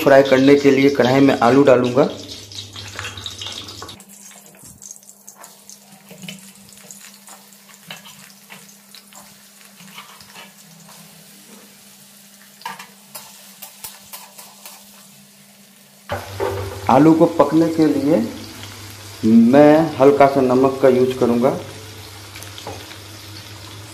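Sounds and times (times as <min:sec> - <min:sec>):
potatoes sizzling in oil: 0:00.0 - 0:23.9.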